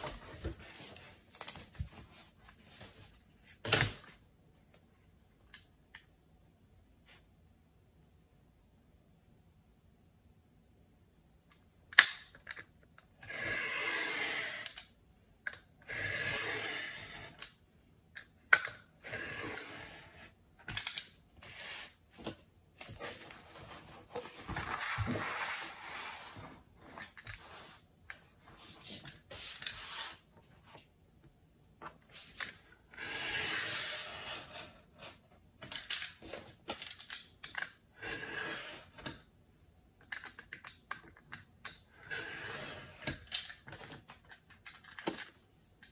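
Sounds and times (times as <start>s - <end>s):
tool scraping along a ruler: 13.2s - 14.8s, 15.8s - 17.4s, 19.0s - 20.4s, 22.9s - 27.8s, 28.6s - 30.3s, 32.9s - 35.2s, 38.0s - 39.1s, 42.0s - 43.1s.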